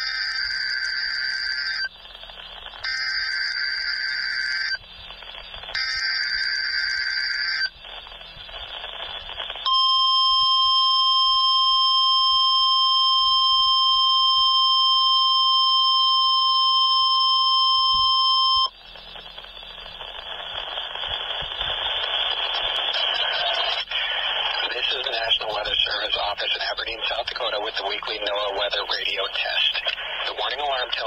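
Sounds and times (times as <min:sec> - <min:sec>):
loud piercing alarm tone: 0:00.0 - 0:01.9, 0:02.8 - 0:04.8, 0:05.8 - 0:07.7, 0:09.6 - 0:19.0
radio hiss: 0:00.0 - 0:31.0
radio static: 0:00.0 - 0:31.0.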